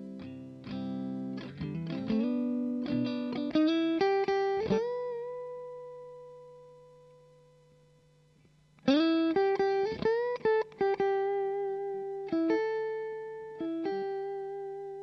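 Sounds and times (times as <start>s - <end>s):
clean electric guitar lead: 0.0s - 7.4s.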